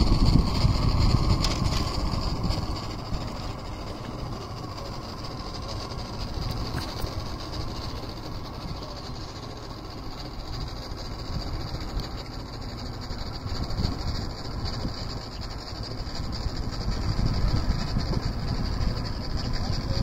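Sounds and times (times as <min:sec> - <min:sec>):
low rumbling noise: 0:00.0 - 0:20.0.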